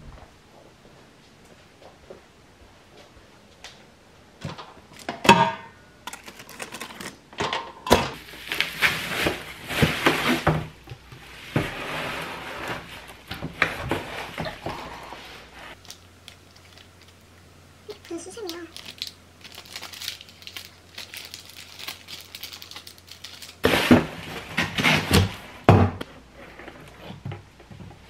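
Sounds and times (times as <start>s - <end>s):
plastic wrappers crinkling: 6.1s - 7.2s, 8.2s - 10.5s, 15.7s - 25.4s.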